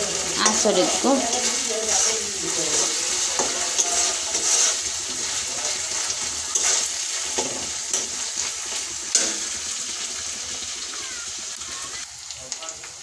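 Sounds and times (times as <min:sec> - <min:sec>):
onions sizzling in oil: 0:00.0 - 0:13.0
metal spatula scraping pan: 0:00.1 - 0:09.8.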